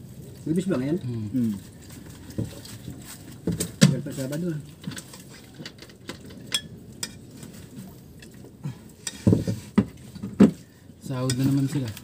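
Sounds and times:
metal spoon scraping a pan: 9.0 - 9.3.

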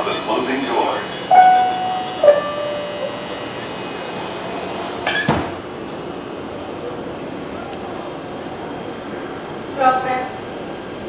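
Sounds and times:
subway car hum: 0.0 - 11.0
descending door-closing chime: 1.3 - 4.0.

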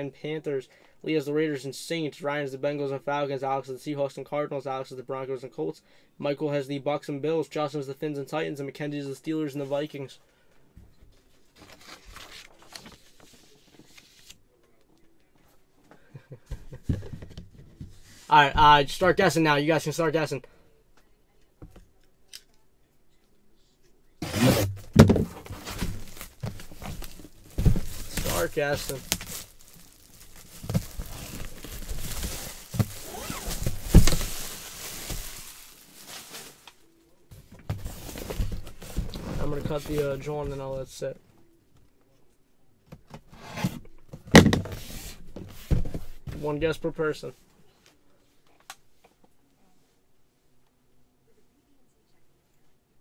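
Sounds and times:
paper rustling: 11.6 - 14.4, 24.2 - 36.8
plastic wrap crinkling: 24.4 - 36.8
cardboard box thumps: 24.6 - 28.4, 30.7 - 34.4.

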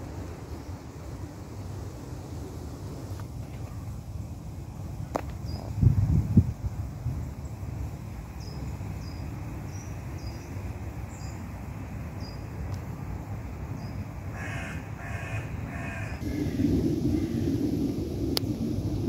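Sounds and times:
crow cawing: 14.3 - 16.6
steady low rumble: 15.7 - 19.0.

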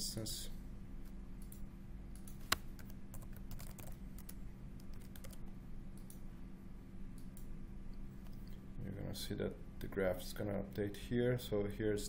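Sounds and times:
low steady hum: 0.0 - 12.0
computer keyboard typing: 2.2 - 5.4.

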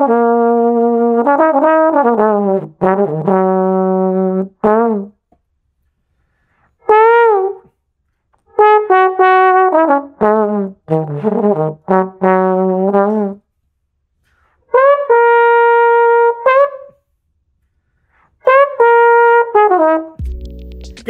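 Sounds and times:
slide trombone playing: 0.0 - 5.2, 6.8 - 7.7, 8.5 - 13.4, 14.7 - 17.0, 18.4 - 21.0.

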